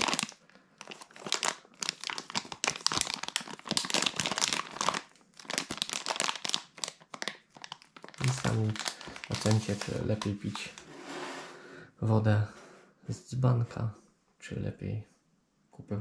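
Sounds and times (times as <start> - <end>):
plastic wrapper crinkling: 0.0 - 10.9.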